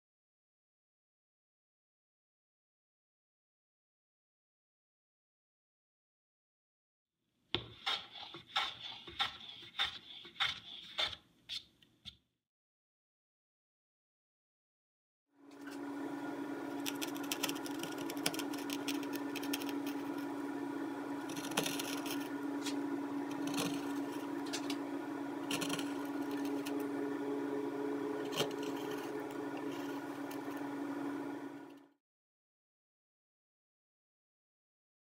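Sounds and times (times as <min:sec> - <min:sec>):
gouge carving wood: 0:07.6 - 0:11.7, 0:16.7 - 0:20.3, 0:21.2 - 0:24.8, 0:25.4 - 0:26.9, 0:28.1 - 0:30.7
electrical hum: 0:15.4 - 0:32.0.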